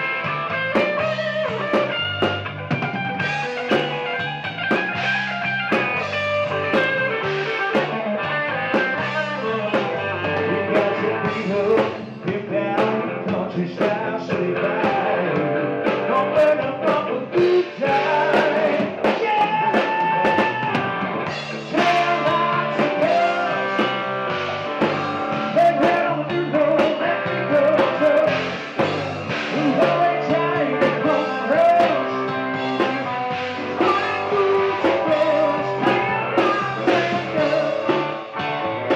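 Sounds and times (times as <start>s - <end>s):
drum kit: 0.0s - 38.9s
electric guitars: 0.0s - 38.9s
man singing into a microphone: 10.4s - 20.9s, 21.6s - 24.0s, 25.3s - 28.5s, 29.4s - 38.0s.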